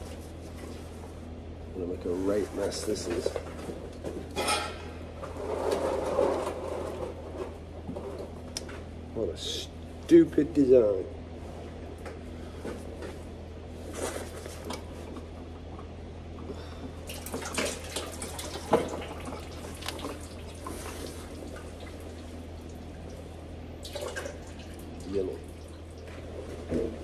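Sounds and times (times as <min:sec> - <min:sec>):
oil dripping and trickling: 0:17.0 - 0:26.4.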